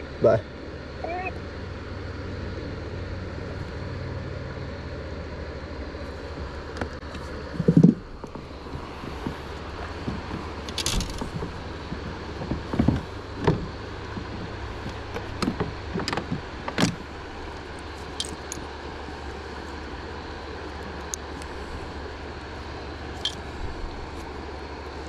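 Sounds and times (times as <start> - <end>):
steady low rumble: 0.0 - 25.0
gear clicking and knocking: 7.6 - 18.7.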